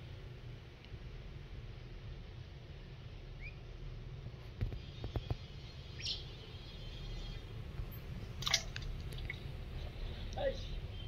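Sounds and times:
bird chirps: 3.4 - 3.6, 5.5 - 7.5.

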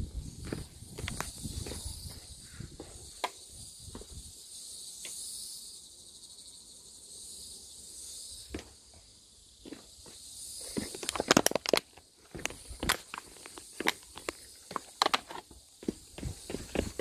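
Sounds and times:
insect chorus buzzing: 0.0 - 17.0
footsteps: 0.4 - 4.2, 9.6 - 17.0.

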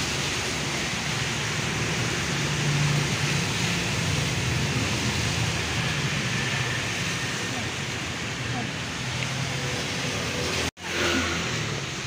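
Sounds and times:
tyres hissing on wet road: 0.0 - 12.0.

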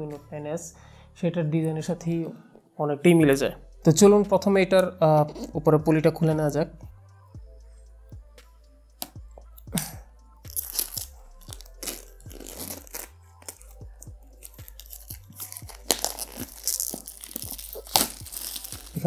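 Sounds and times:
plastic shrink wrap crinkling: 10.5 - 19.0.

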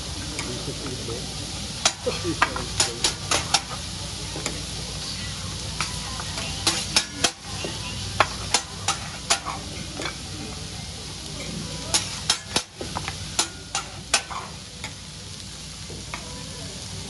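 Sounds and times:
food sizzling on a griddle: 0.0 - 17.0
metal spatula clacking on steel: 1.8 - 3.8, 5.8 - 10.2, 11.9 - 15.0.

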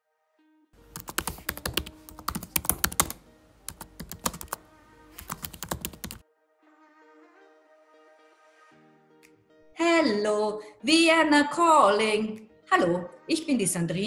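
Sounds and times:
soft background music: 0.0 - 14.0
keyboard typing clicks: 0.9 - 6.2.

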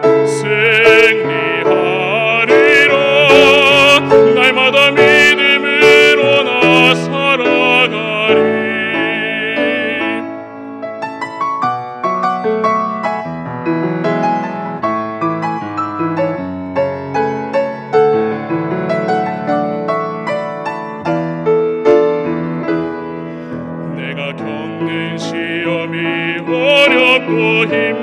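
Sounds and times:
piano playing: 0.0 - 28.0.

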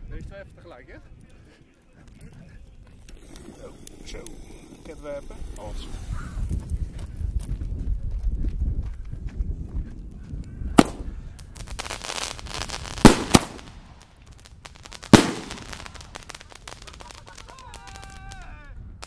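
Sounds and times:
fireworks crackling and hiss: 2.9 - 7.3, 10.8 - 18.7
fireworks bangs: 10.8 - 18.5.

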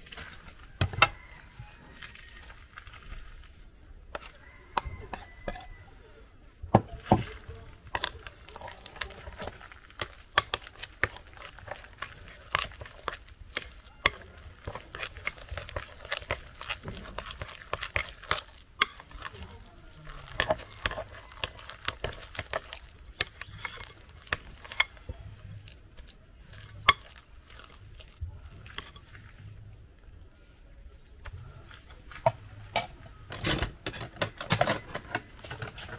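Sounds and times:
hands mixing in a glass bowl: 4.1 - 5.7, 6.8 - 29.4.

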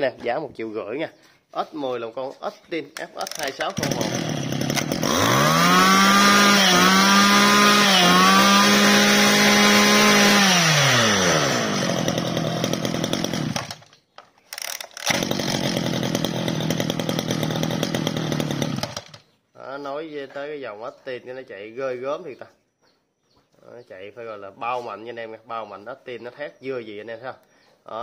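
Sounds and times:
brush cutter engine revving: 3.0 - 19.2.

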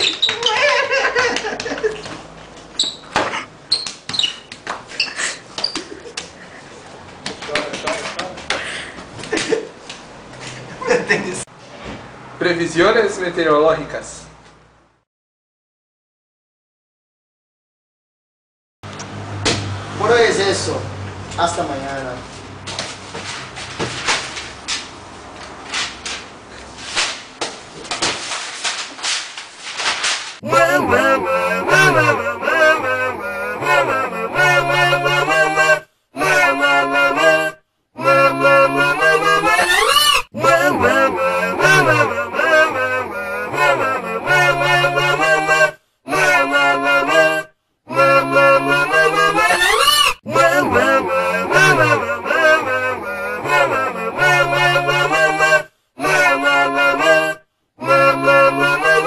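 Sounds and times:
short high squeaks: 0.0 - 0.6, 2.8 - 5.9
paper shuffling: 22.7 - 30.4
high wavering wail: 30.4 - 59.0.

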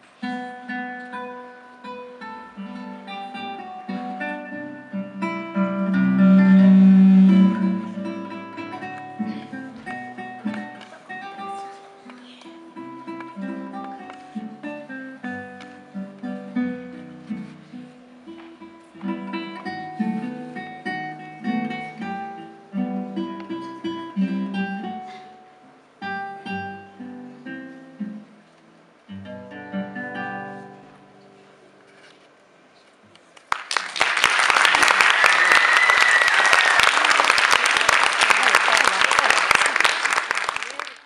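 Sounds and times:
fingerpicked classical guitar: 0.0 - 33.2
audience applause: 33.5 - 41.0.

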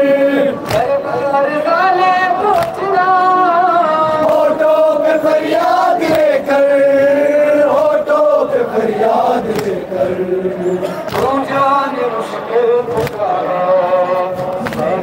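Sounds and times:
men chanting a lament: 0.0 - 15.0
chest-beating slaps: 0.6 - 0.9, 2.5 - 2.8, 9.4 - 9.8, 12.9 - 13.3.

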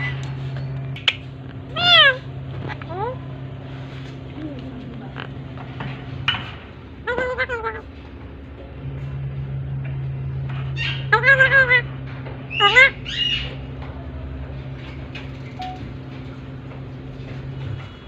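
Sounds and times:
steady low hum: 0.0 - 18.0
parakeet calling: 1.0 - 3.1, 10.6 - 11.9, 12.5 - 13.7.

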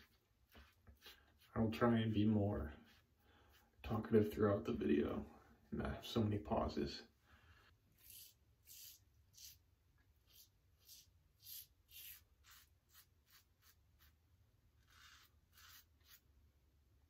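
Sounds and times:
razor scraping stubble: 8.0 - 9.6, 10.2 - 14.2, 14.8 - 16.2.

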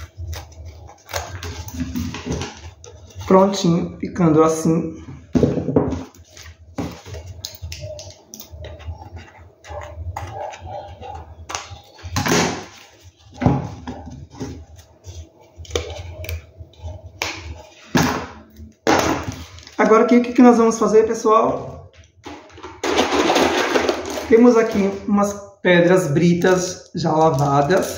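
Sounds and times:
rustling handling noises: 5.2 - 17.9.

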